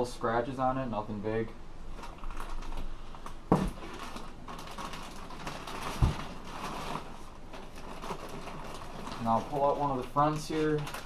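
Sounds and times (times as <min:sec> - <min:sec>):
plastic packaging rustling: 0:01.9 - 0:11.0
knocks on cardboard box: 0:03.5 - 0:03.8.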